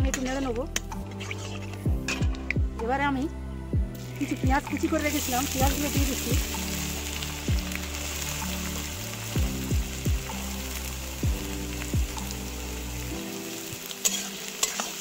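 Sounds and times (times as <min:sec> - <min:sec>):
background music with deep bass: 0:00.0 - 0:15.0
onions sizzling in hot oil: 0:04.0 - 0:15.0.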